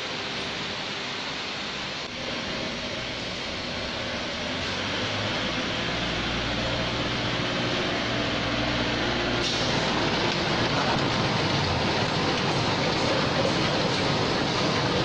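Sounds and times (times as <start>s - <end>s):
packaging machinery running: 8.2s - 15.0s.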